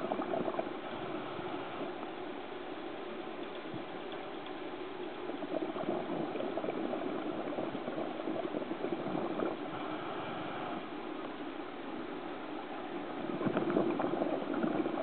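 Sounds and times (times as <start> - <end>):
regulator bubbles underwater: 0.0 - 15.0.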